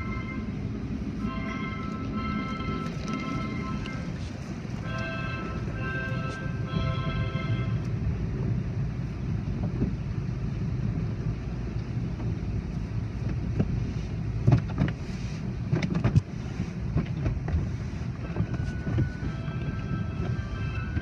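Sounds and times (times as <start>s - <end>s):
car wash machinery rumble: 0.0s - 21.0s
wash strips slapping windshield: 12.8s - 21.0s.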